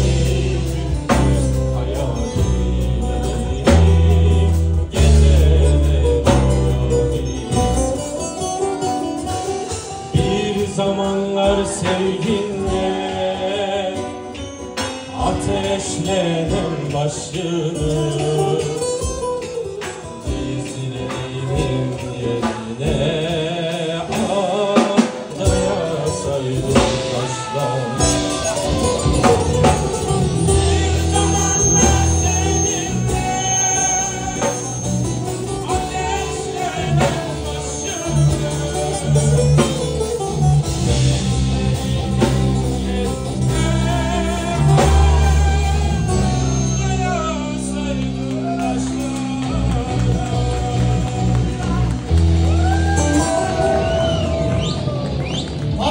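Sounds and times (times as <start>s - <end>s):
bass notes: 0.0s - 14.2s, 25.4s - 55.9s
man singing into a microphone: 0.0s - 52.2s
drums: 0.0s - 55.9s
guitar: 0.0s - 55.9s.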